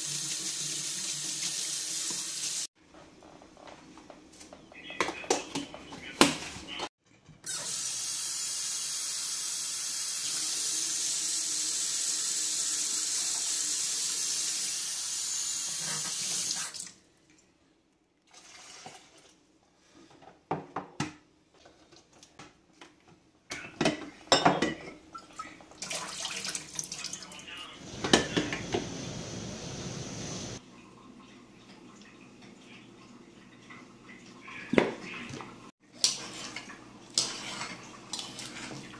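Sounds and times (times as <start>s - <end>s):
water splashing in a metal sink: 18.3s - 19.4s, 25.1s - 27.4s, 33.5s - 38.9s.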